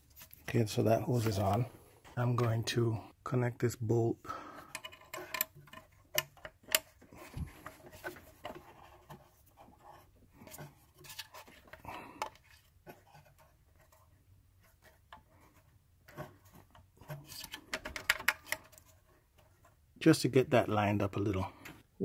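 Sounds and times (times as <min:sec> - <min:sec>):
metal bolt clicks and rubs: 0:04.6 - 0:14.0, 0:14.7 - 0:19.6.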